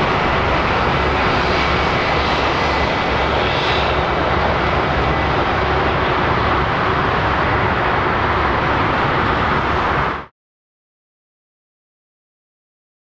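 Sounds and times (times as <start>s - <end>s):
jet engines roaring: 0.0s - 10.3s.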